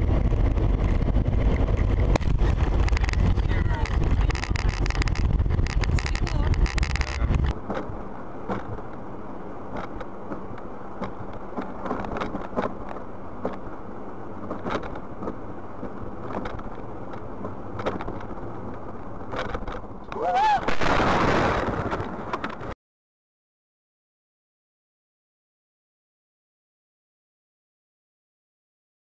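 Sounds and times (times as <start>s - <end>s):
car driving on snowy road: 0.0s - 22.8s
small knocks and clicks: 1.5s - 7.9s, 9.7s - 13.7s, 14.4s - 19.9s.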